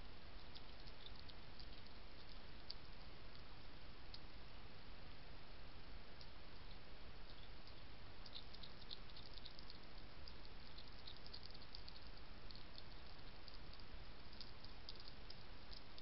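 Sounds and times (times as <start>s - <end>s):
microphone hiss: 0.0s - 16.0s
faint high-pitched ticks: 0.3s - 4.3s, 6.2s - 16.0s.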